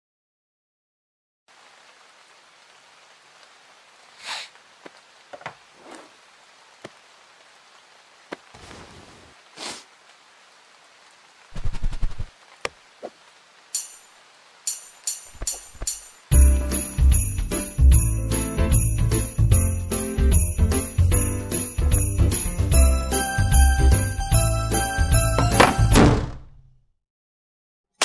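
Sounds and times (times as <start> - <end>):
low hiss like light rain: 1.5 - 25.9
small bells jingling: 14.7 - 25.4.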